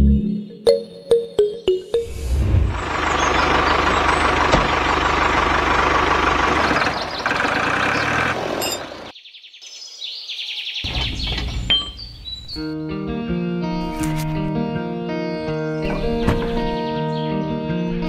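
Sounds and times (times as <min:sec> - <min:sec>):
diesel tractor engine rumbling: 0:02.6 - 0:09.1
birds chirping: 0:02.7 - 0:12.8, 0:15.3 - 0:18.0.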